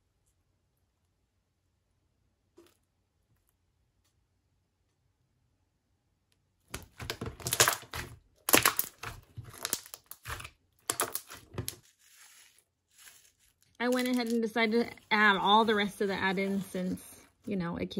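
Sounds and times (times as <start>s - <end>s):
wet squelching slime: 6.7s - 17.5s
plastic bag rustle: 9.0s - 17.5s.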